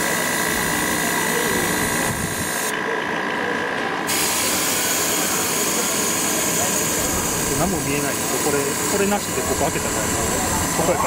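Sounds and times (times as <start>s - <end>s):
sandblast gun hissing: 4.1s - 11.0s.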